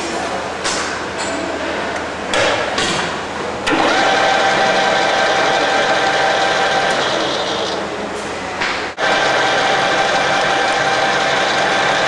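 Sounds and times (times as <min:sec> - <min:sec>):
lathe motor whining: 0:03.7 - 0:08.0, 0:09.0 - 0:12.0.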